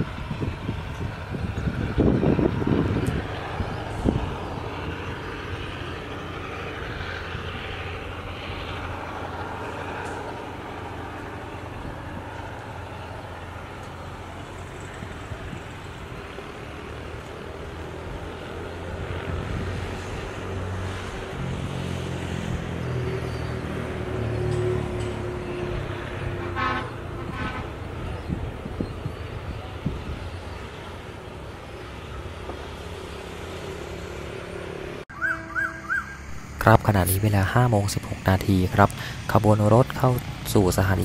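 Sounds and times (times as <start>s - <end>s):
diesel train engine: 0.0s - 41.0s
distant road traffic: 0.0s - 41.0s
deep engine note: 35.1s - 38.2s.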